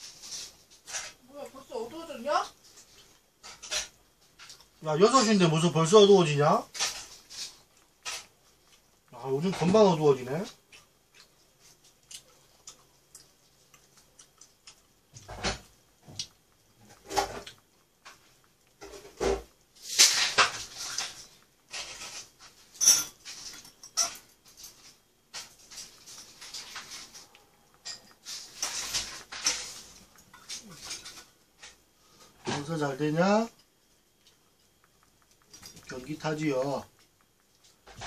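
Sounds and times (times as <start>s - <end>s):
bright clatter: 16.9s - 31.8s.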